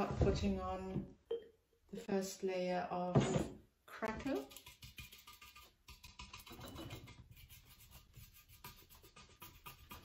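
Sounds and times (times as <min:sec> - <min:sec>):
paintbrush scrubbing paint: 0:04.2 - 0:10.0.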